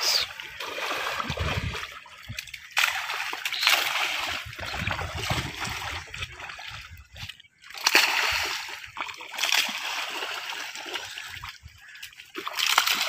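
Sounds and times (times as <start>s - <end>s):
fish splashing at water surface: 0.0s - 7.0s, 7.7s - 13.0s.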